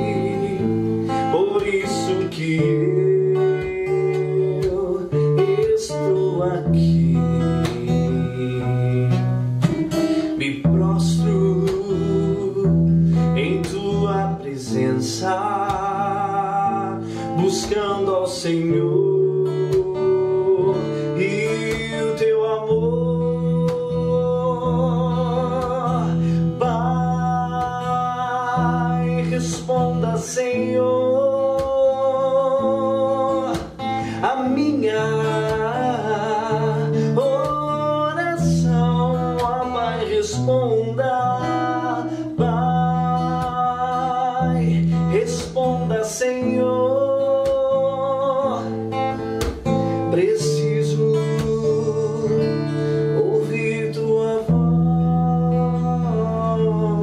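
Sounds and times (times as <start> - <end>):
man singing worship song: 0.0 - 57.0
strummed acoustic guitar: 0.0 - 57.0.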